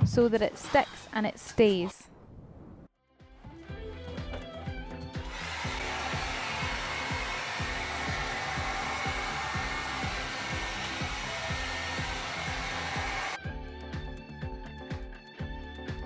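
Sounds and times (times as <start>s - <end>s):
background music with steady beat: 3.1s - 16.0s
heat gun blowing with whining fan: 5.3s - 13.4s.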